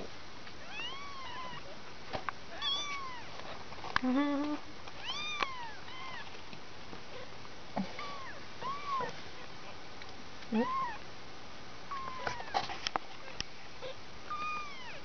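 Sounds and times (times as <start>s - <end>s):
low steady voice sound: 4.0s - 4.7s
kittens mewing: 10.5s - 11.0s.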